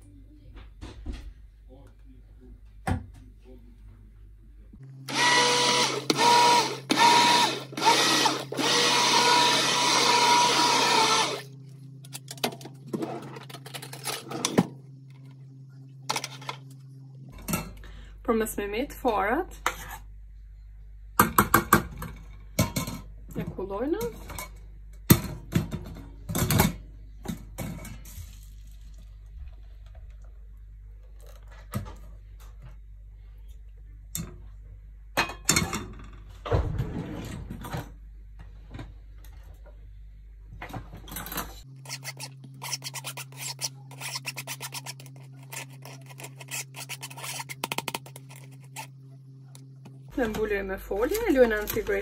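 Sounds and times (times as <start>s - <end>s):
immersion blender whining: 5.1s - 11.6s, 41.7s - 50.1s.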